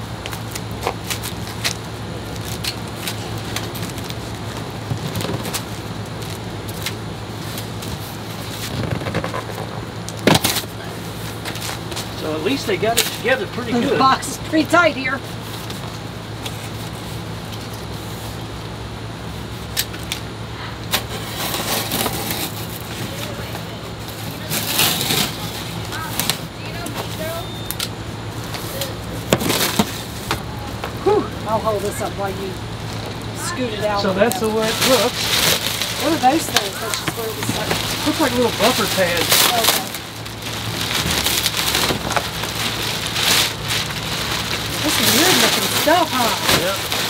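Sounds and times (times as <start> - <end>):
steady low hum: 0.0 - 47.0
packaging crackles and clicks: 34.2 - 47.0.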